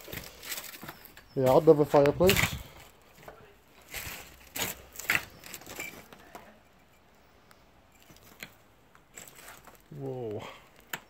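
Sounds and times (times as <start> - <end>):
footsteps crunching on leaves and rubble: 0.0 - 6.2, 8.0 - 10.0.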